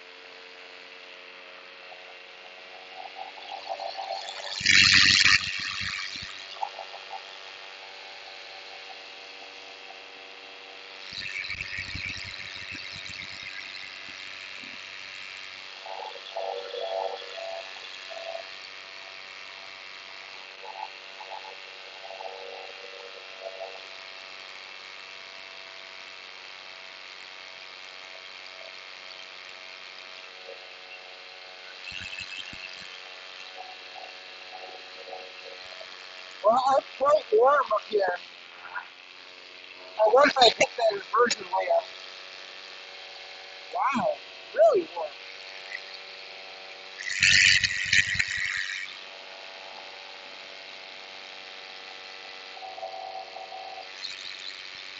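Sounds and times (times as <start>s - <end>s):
paramotor engine droning: 0.4s - 18.6s.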